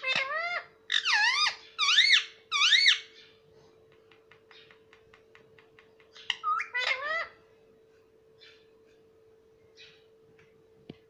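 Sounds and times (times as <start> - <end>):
parakeet shrill calls: 0.0 - 3.3, 6.2 - 7.4.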